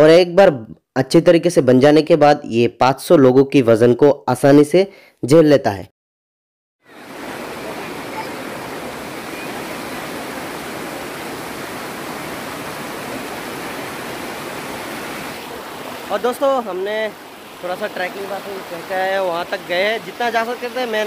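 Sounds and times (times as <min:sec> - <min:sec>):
stream water rushing over rocks: 0:06.9 - 0:21.0.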